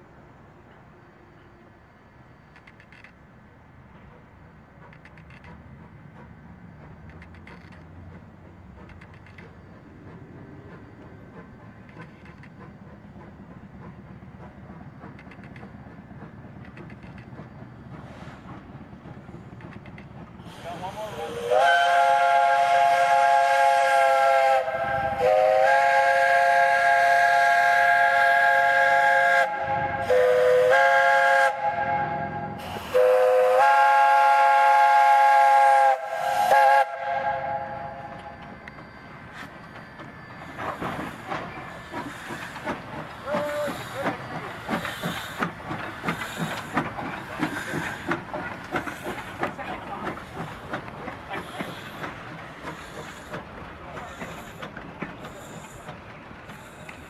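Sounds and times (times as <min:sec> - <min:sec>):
steam locomotive exhaust chuffs: 0:03.9 - 0:57.0
steam hiss: 0:08.6 - 0:57.0
steam locomotive whistle: 0:20.5 - 0:38.5.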